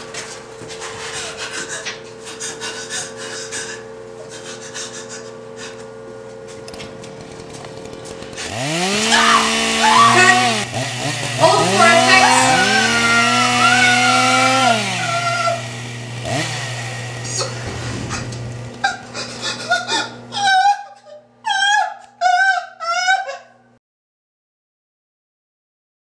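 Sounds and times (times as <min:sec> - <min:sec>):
rasping scraping noises: 0:00.0 - 0:06.6
steady hum: 0:00.0 - 0:20.4
chainsaw engine revving: 0:07.1 - 0:19.4.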